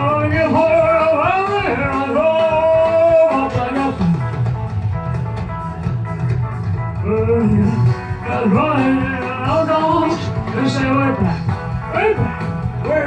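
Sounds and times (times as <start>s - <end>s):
man singing into a microphone: 0.0s - 4.3s, 7.0s - 13.0s
rockabilly backing track: 0.0s - 13.0s.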